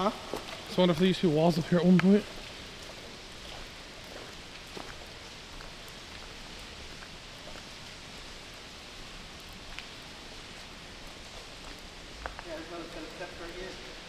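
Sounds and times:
rain and pouring water: 0.0 - 14.0.

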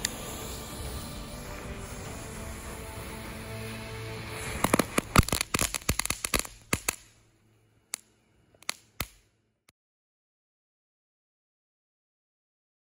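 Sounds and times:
firework crackling pops: 0.0 - 7.3, 7.9 - 9.3.

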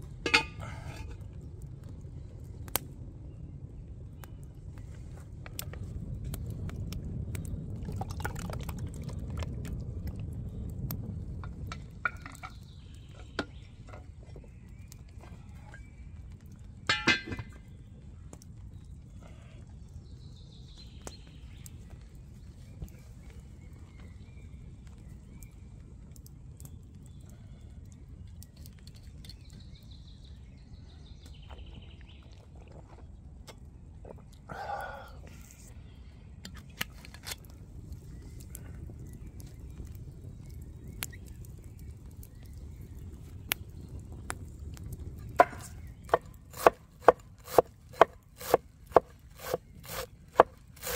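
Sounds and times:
steady low rumble: 0.0 - 50.8
liquid pouring and gurgling: 7.7 - 9.7.

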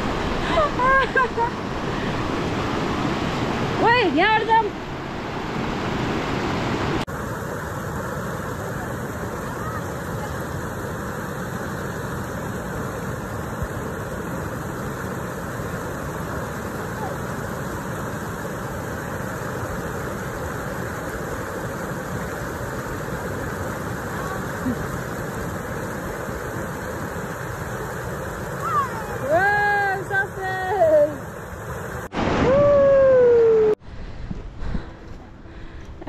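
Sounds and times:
stream water flowing: 0.0 - 32.5.

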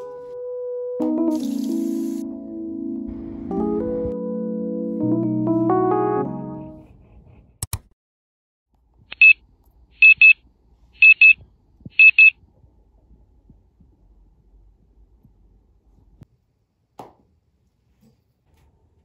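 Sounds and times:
digital alarm beeping: 10.0 - 10.4, 11.0 - 11.4, 12.0 - 12.3.

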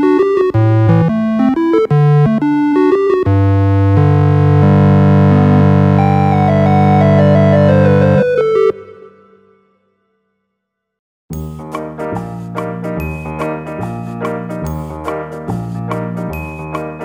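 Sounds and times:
synthesizer music: 0.0 - 9.8.

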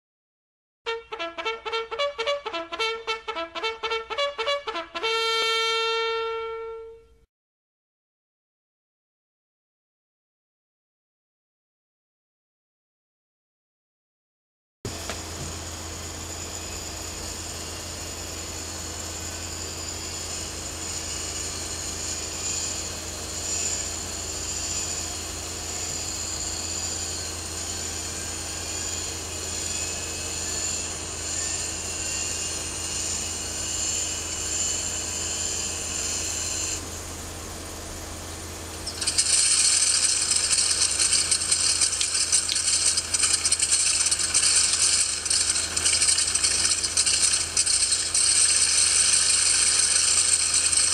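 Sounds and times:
inertia starter whine: 14.9 - 50.9
radial engine running: 14.9 - 50.9.

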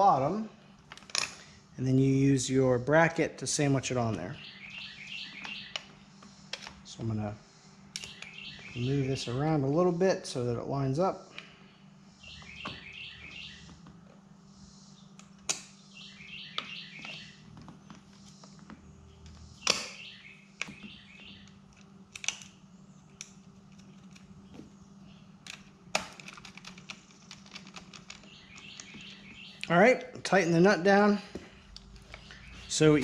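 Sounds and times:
faint steady hum: 0.0 - 33.0
bird chirping: 4.1 - 6.5, 7.4 - 9.7, 11.4 - 13.8, 14.7 - 21.7, 28.1 - 29.8, 31.2 - 33.0.

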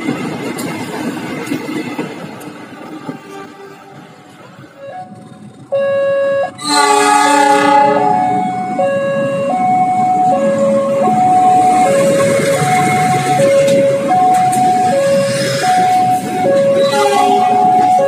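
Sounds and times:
locomotive engine rumble: 0.1 - 18.0
level-crossing warning alarm: 4.7 - 18.0
locomotive horn blast: 5.8 - 9.5, 16.5 - 18.0.

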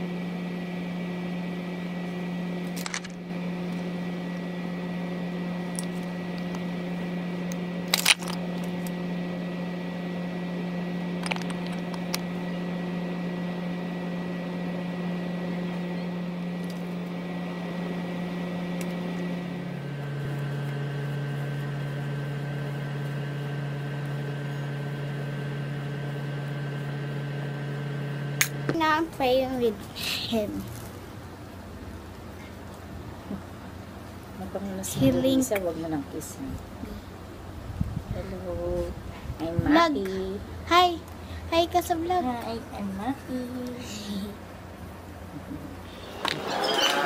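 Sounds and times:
machine hum: 0.0 - 47.0
handling clicks: 11.2 - 12.3.

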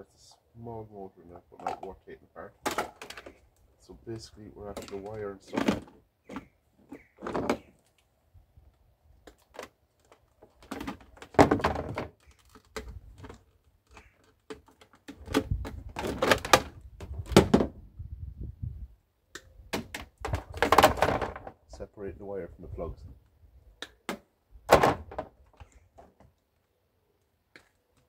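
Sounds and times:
plastic items knocking and clattering: 2.6 - 3.4, 4.7 - 6.5, 7.2 - 7.7, 9.3 - 17.7, 19.7 - 21.6, 24.7 - 26.2.

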